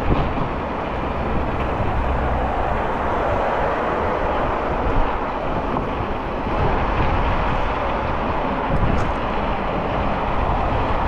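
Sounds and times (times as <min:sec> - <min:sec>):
cars passing on road: 0:00.0 - 0:11.0
heavy low rumble: 0:00.0 - 0:11.0.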